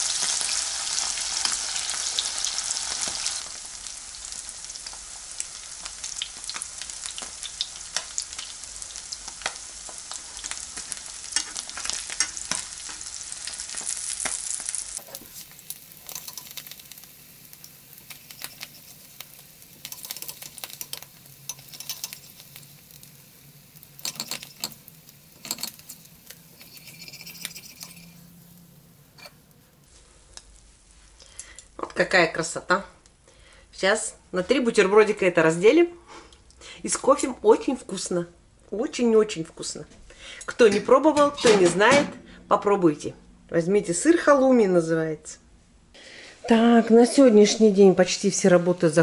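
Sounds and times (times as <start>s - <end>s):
cheese sizzling in frying pan: 0.0s - 31.7s
metal fork scraping pan: 15.0s - 16.8s, 18.1s - 23.1s, 23.9s - 24.8s, 25.4s - 28.3s, 29.2s - 29.4s.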